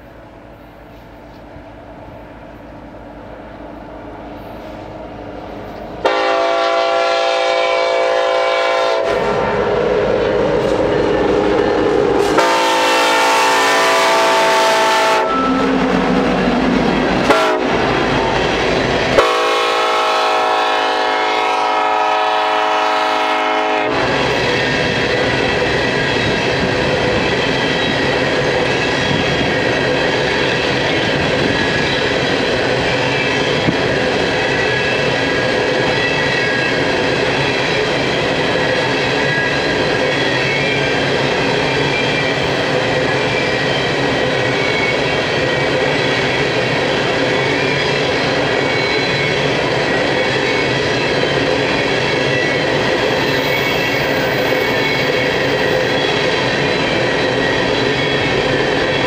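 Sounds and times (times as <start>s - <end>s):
rail cars rumbling past: 0.0s - 59.0s
locomotive air horn blasts: 6.0s - 9.4s, 12.2s - 15.7s, 17.2s - 17.9s, 19.1s - 24.1s.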